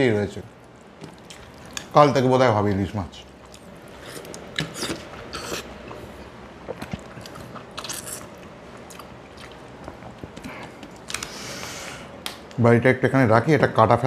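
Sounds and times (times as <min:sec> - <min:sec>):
man chewing food: 0:00.6 - 0:02.0, 0:03.3 - 0:12.2.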